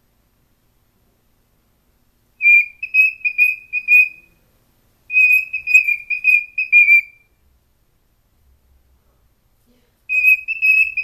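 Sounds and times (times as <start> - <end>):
cockatiel whistling: 2.4 - 4.3, 5.1 - 7.3, 10.1 - 11.0.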